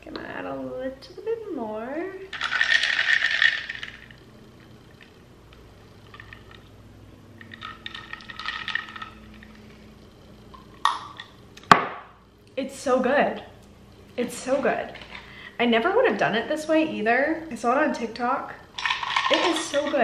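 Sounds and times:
ice clinking in glass jar: 2.3 - 4.1, 7.4 - 9.6, 18.8 - 20.0
liquid pouring into glass jar: 7.4 - 9.6.

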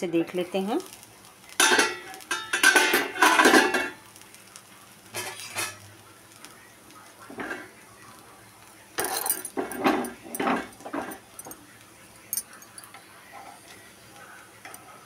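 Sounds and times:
metal pot lid clattering: 1.6 - 4.0, 9.0 - 11.2
light metallic clinks: 12.3 - 12.9.

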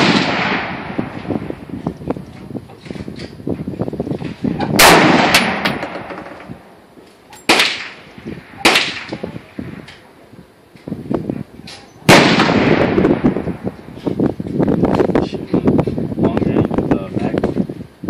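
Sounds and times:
rifle shots with echo: 0.0 - 1.5, 4.8 - 6.4, 7.5 - 9.9, 12.1 - 13.6.

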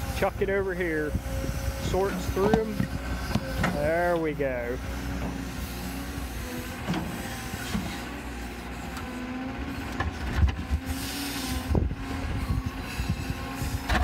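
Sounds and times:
excavator engine and hydraulics: 0.0 - 14.0.

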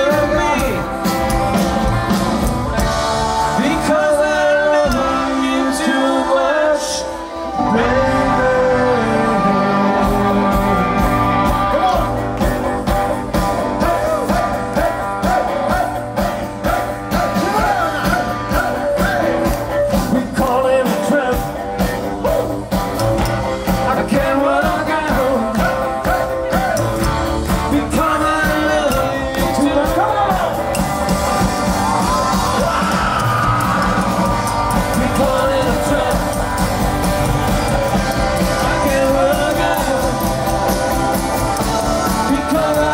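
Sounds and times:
man singing: 0.0 - 1.2, 3.1 - 12.2, 13.6 - 22.5, 23.7 - 30.8, 34.6 - 36.9, 38.1 - 42.9
rock and roll band playing: 0.0 - 42.9.

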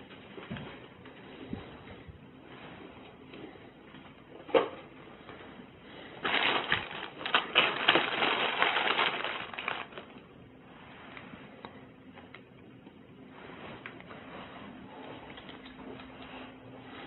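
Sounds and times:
bags and papers crinkling: 6.1 - 10.3.

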